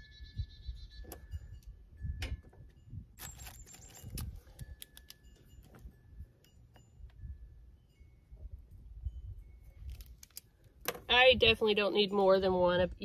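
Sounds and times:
plastic bag crinkling: 3.2s - 5.2s.

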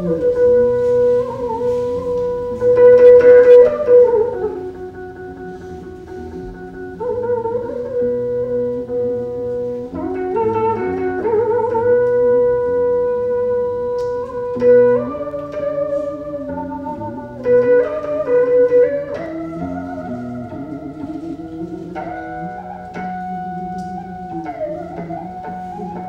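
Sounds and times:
lower monochord part: 0.0s - 26.0s
monochord melody with bent notes: 0.0s - 26.0s.

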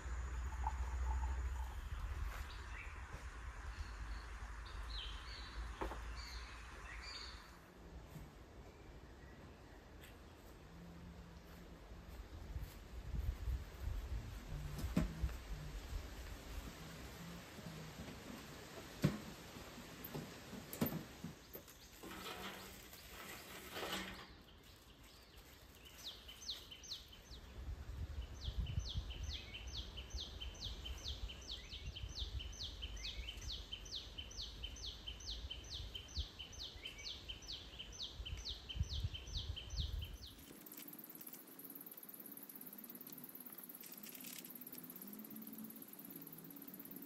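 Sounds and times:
low rumble: 0.0s - 7.3s.

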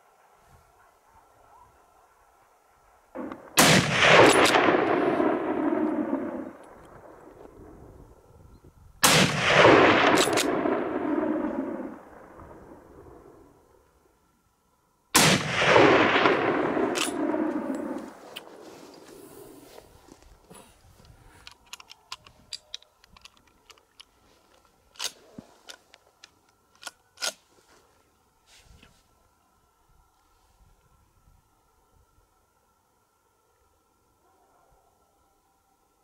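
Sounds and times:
echo rolling off hills: 0.0s - 36.0s
rifle shots: 3.2s - 7.2s, 9.0s - 13.3s, 15.2s - 18.6s.

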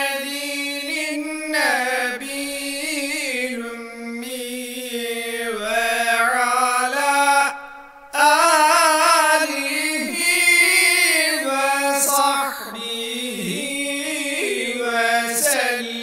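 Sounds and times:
person chanting: 0.0s - 16.0s.

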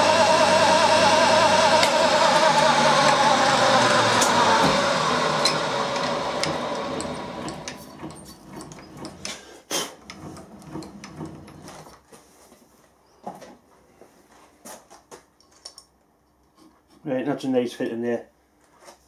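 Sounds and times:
milling machine spindle winding down: 0.0s - 9.4s, 10.0s - 11.8s.

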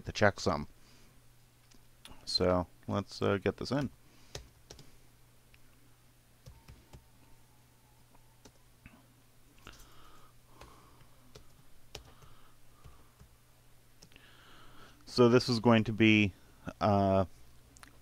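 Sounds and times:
steady low hum: 0.0s - 18.0s
keyboard typing: 3.8s - 4.9s, 10.6s - 13.3s.

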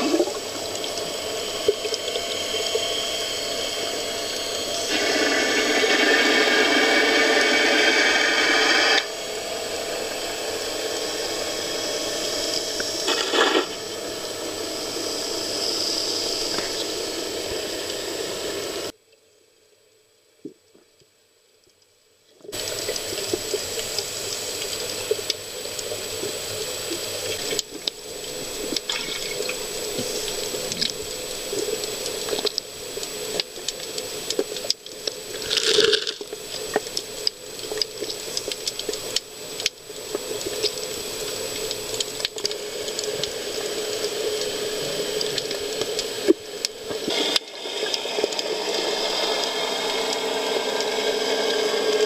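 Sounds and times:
underwater bubbles rushing: 0.0s - 18.9s, 22.5s - 52.0s
underwater hiss: 0.0s - 18.9s, 22.5s - 52.0s.

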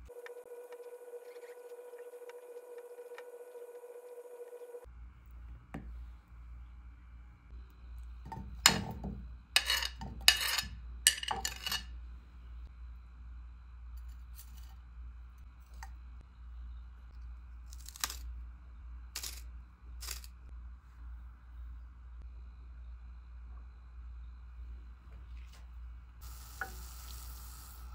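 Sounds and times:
steady low hum: 0.0s - 27.9s
knife clinking on ceramic plate: 9.6s - 11.9s.

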